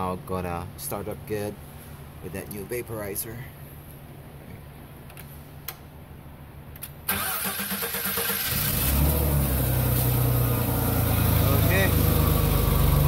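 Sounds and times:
starter cranking engine: 0:07.1 - 0:09.0
forklift engine idling: 0:10.2 - 0:13.0.

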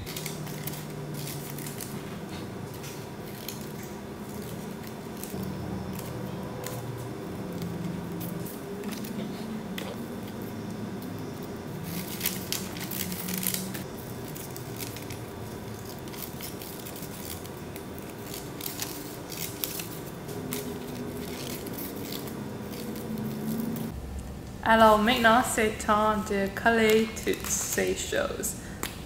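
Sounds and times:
scissors cutting paper: 0:00.0 - 0:24.0.

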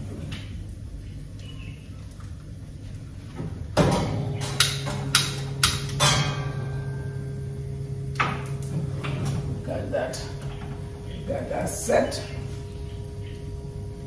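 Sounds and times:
steady low hum: 0:00.0 - 0:14.0
igniter clicks: 0:04.4 - 0:06.2.

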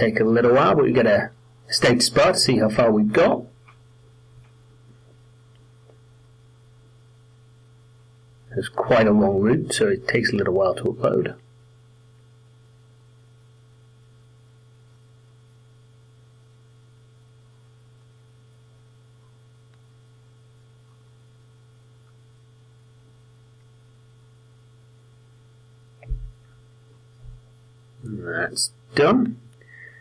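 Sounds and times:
low electrical hum: 0:00.0 - 0:30.0
short thump: 0:26.0 - 0:26.4.

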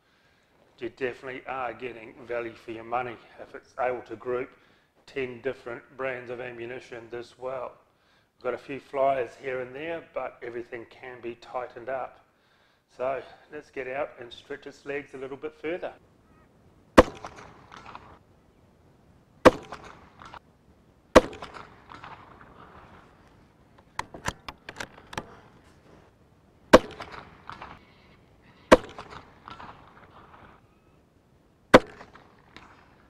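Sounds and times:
rifle shots: 0:17.0 - 0:18.2, 0:19.4 - 0:20.4, 0:21.1 - 0:23.3, 0:26.7 - 0:30.6, 0:31.7 - 0:33.0
metallic rifle bolt clicks: 0:23.8 - 0:25.4.

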